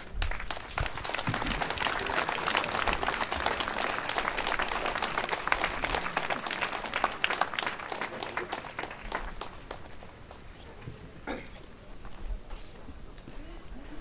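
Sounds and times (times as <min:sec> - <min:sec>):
crowd applauding: 0:00.0 - 0:10.4.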